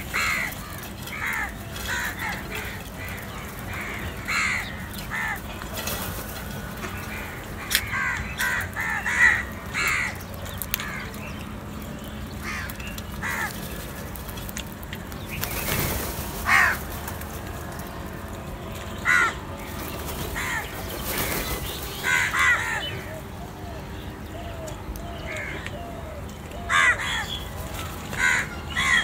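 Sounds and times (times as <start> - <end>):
crows cawing: 0.0 - 5.5, 7.0 - 11.1, 12.4 - 13.6, 16.4 - 16.9, 19.0 - 19.4, 20.3 - 23.2, 24.3 - 25.9, 26.6 - 27.4, 28.1 - 29.0.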